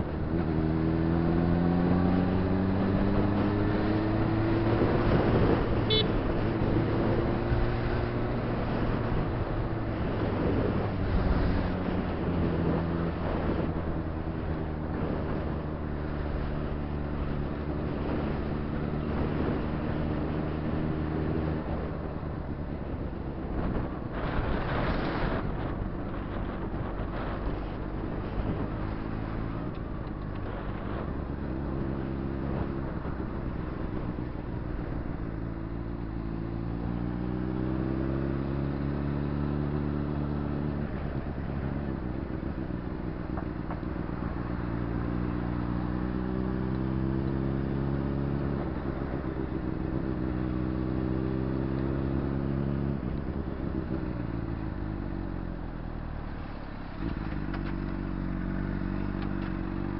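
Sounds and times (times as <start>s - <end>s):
wind rush on microphone: 0.0s - 59.9s
motorcycle engine running: 2.1s - 7.8s.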